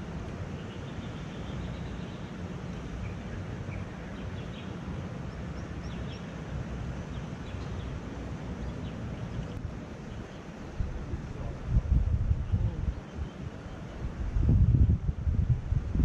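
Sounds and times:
wind rumbling on microphone: 0.0 - 16.0
faint bird chirps: 12.4 - 14.1.

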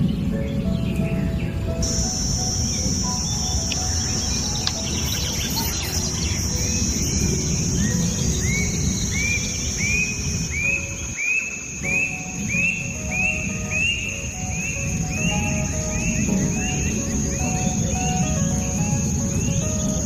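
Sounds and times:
high insect drone: 0.0 - 20.0
low rumbling noise: 0.0 - 20.0
short rising chirp: 1.8 - 14.0.

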